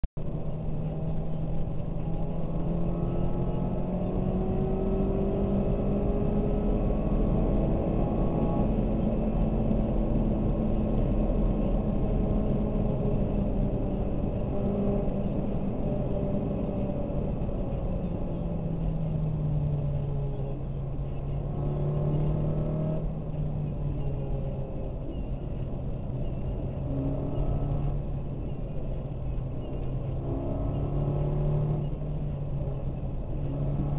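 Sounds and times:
car engine drone: 0.2s - 33.9s
road noise inside car: 0.2s - 33.9s.

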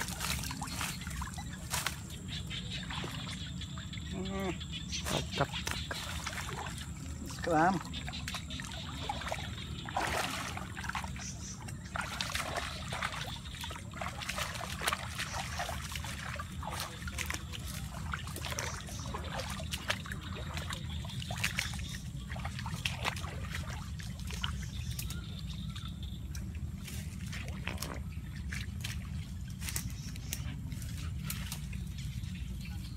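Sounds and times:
water splash: 0.0s - 2.0s, 5.0s - 24.7s
water trickling and dripping: 0.0s - 32.9s.

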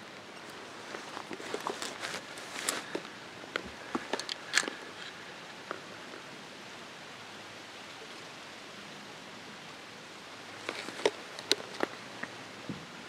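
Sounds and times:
outdoor background hiss: 0.0s - 13.0s
small clicks and rustles: 0.1s - 6.3s, 10.5s - 12.4s.

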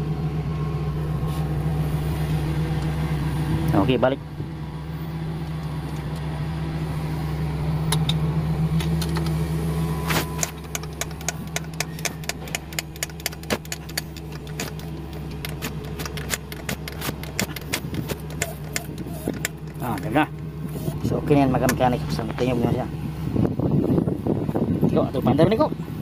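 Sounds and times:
low engine hum: 0.0s - 26.0s
light metallic clicks: 10.2s - 20.5s.

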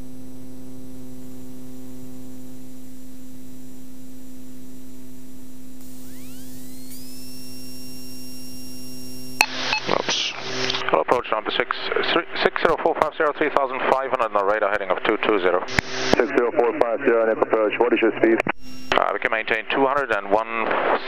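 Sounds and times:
compressor whine rising: 5.8s - 10.9s.

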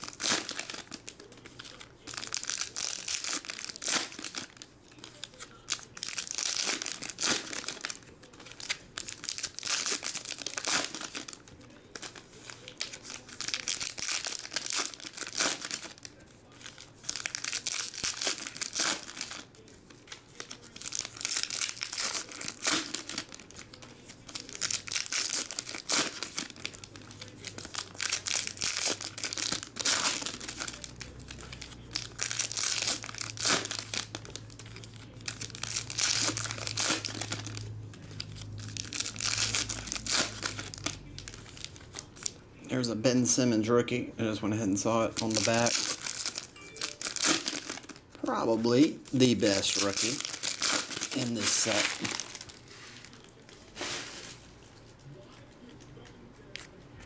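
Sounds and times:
foil wrappers tearing and crinkling: 0.0s - 42.4s, 44.9s - 54.5s.

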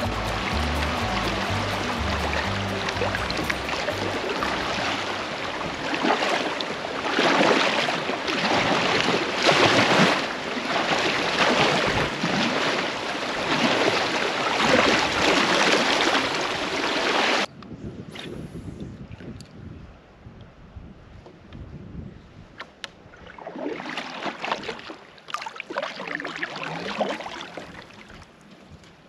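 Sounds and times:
creek current rushing: 0.0s - 17.5s
paddle splashing in water: 0.0s - 17.5s, 23.0s - 28.9s.

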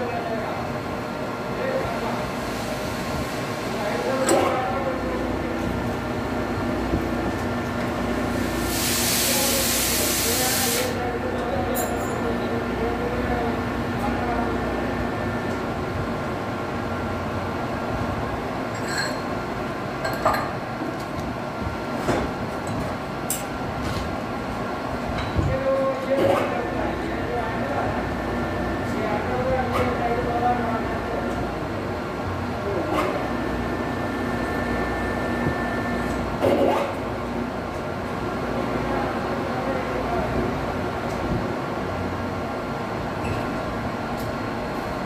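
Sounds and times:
metal lathe hum and whine: 33.2s - 36.4s.

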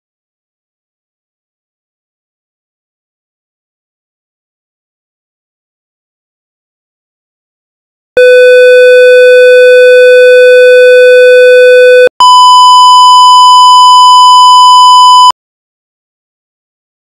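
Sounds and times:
steady electronic test tones: 12.2s - 15.3s.

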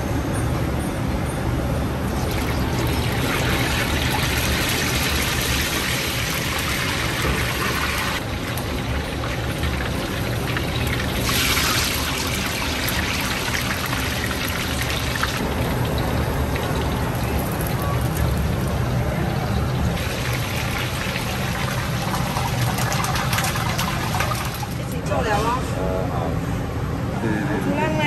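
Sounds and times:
fish sizzling in hot oil: 2.2s - 18.7s.

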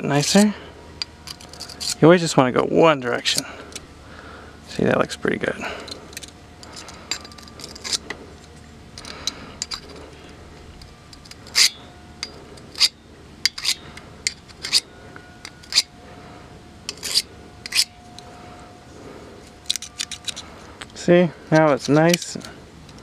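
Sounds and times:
blade scraping on sharpening stone: 11.1s - 14.8s, 15.5s - 15.9s, 16.9s - 18.0s.

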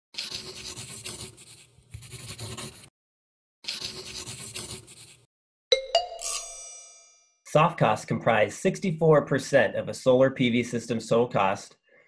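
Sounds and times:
marker scribbling: 0.2s - 2.9s, 3.6s - 5.3s.

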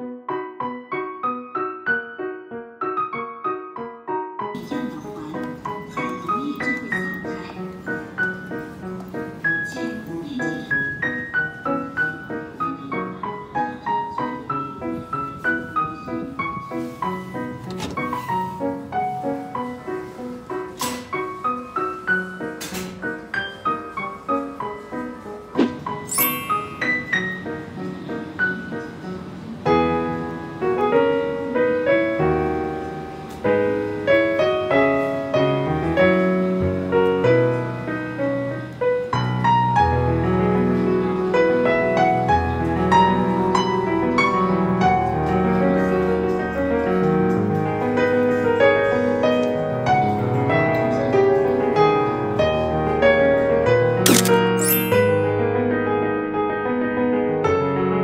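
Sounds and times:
piano music: 0.0s - 58.0s
short bright swish: 54.1s - 55.2s.

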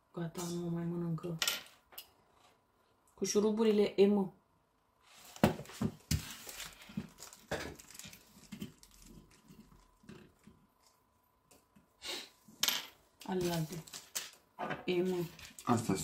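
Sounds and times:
rustling: 5.0s - 11.0s.

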